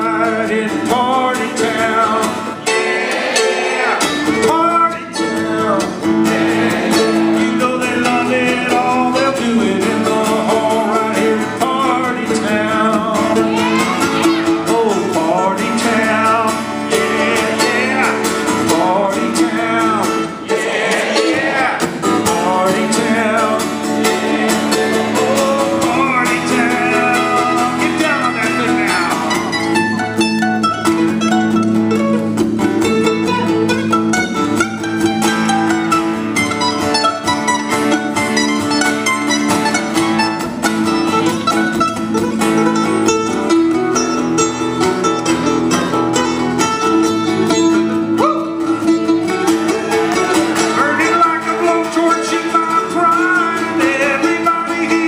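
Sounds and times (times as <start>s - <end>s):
man singing: 0.0s - 2.8s, 3.7s - 30.0s, 47.4s - 48.9s, 49.8s - 55.0s
acoustic guitar: 0.0s - 55.0s
mandolin picking: 0.0s - 55.0s.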